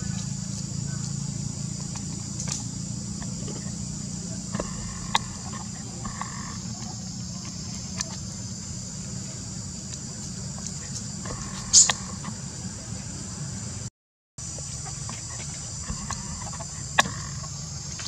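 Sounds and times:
high insect chorus: 0:00.0 - 0:18.0
faint short squeaky calls: 0:03.2 - 0:08.7, 0:10.6 - 0:12.8, 0:14.8 - 0:18.0
sharp clicks: 0:04.6 - 0:08.2.

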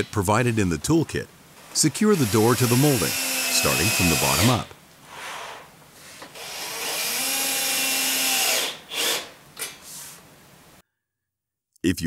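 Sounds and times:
cordless drill driving screws: 0:01.7 - 0:04.7, 0:06.2 - 0:09.8.

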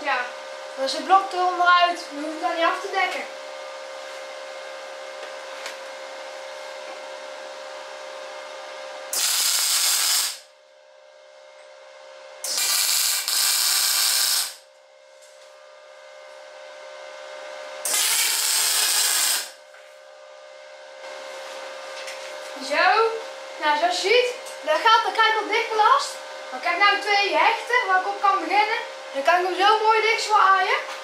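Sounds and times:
respirator blower whine: 0:00.0 - 0:31.0
welding arc crackling: 0:09.1 - 0:10.5, 0:12.4 - 0:14.7, 0:17.8 - 0:19.6.

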